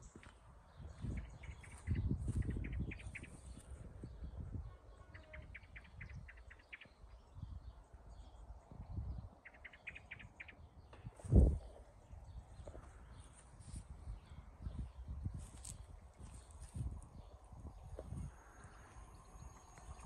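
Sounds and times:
wind rumble on microphone: 0.0 - 20.0
small bird chirping: 0.8 - 3.7, 9.2 - 10.7.

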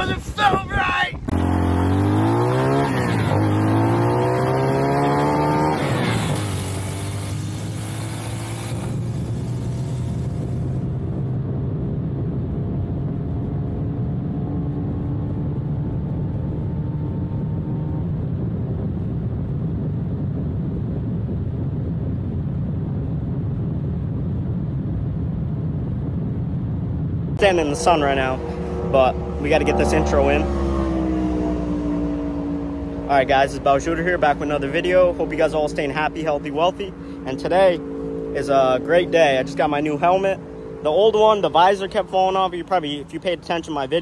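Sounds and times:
rushing noise: 0.0 - 11.1
small motorcycle engine revving: 1.3 - 11.6, 27.4 - 42.6.

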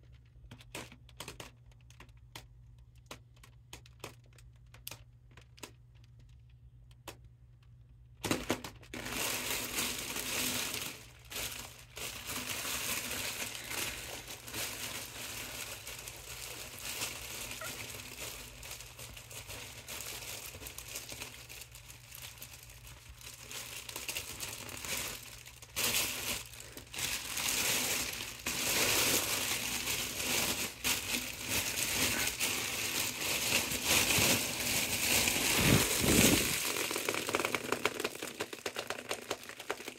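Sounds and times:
foil balloon crinkling: 8.0 - 39.9.

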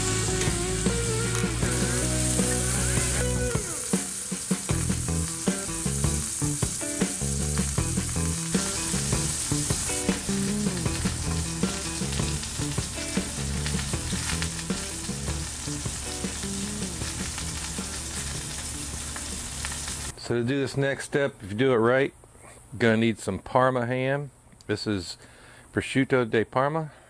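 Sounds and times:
meat sizzling in a skillet: 0.0 - 20.1.

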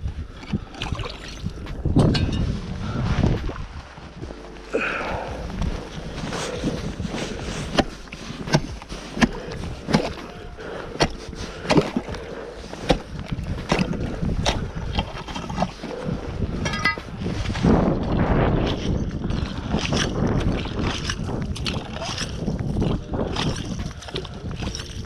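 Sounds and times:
wind rumble on microphone: 0.0 - 25.0.

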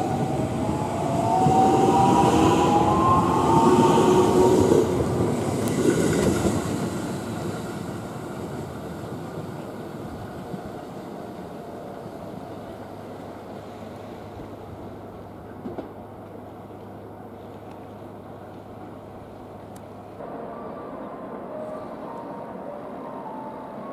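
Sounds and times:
electric train pulling away: 0.0 - 12.4.

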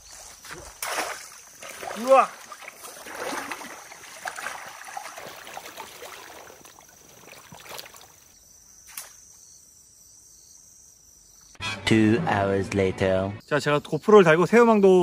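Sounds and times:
high insect trill: 0.0 - 11.6
water sloshing around legs: 0.5 - 8.3
music: 11.6 - 13.4.

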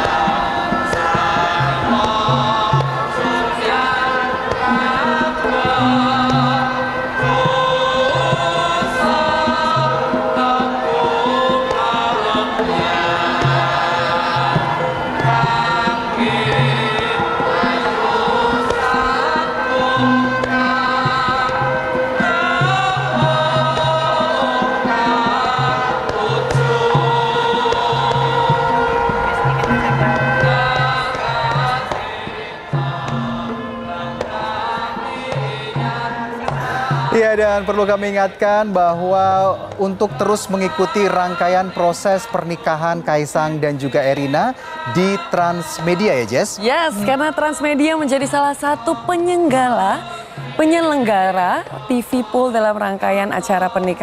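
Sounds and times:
gamelan ensemble: 0.0 - 38.4
group of voices singing: 0.0 - 54.0.

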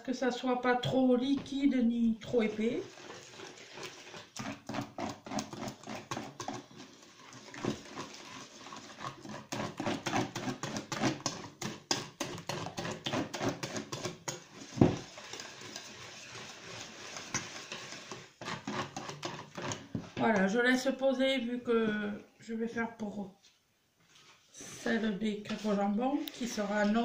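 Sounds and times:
whisk beating batter in metal bowl: 2.2 - 20.2.

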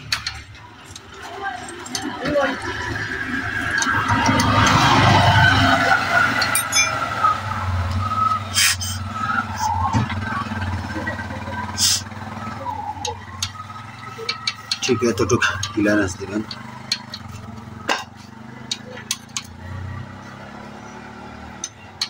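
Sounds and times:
sharp metallic clicks: 0.0 - 2.2, 13.0 - 20.2, 21.5 - 22.0.

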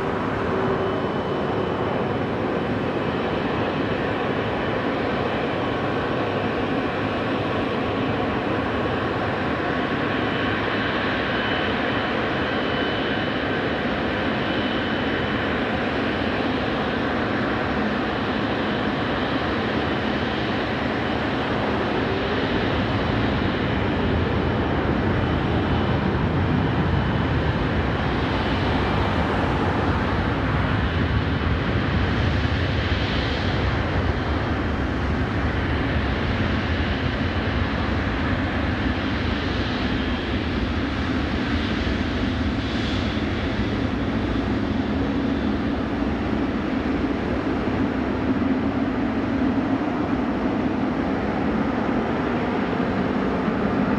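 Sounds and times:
jet engines rumble and hiss: 0.0 - 53.9.

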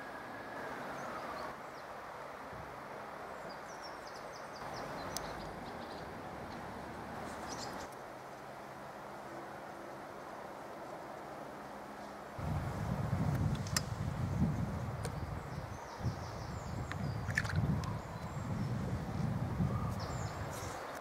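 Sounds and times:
distant siren wailing: 0.0 - 1.5
steady background noise: 0.0 - 21.0.

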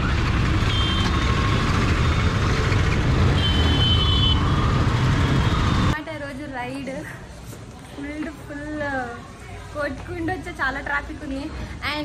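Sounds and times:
motorcycle engine: 0.0 - 6.0.

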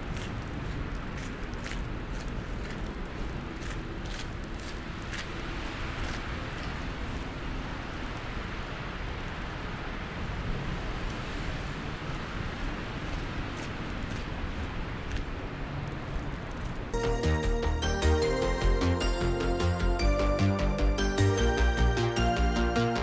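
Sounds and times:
footsteps crunching in snow: 0.0 - 8.1, 11.3 - 16.9
traffic rumble: 0.0 - 19.0.

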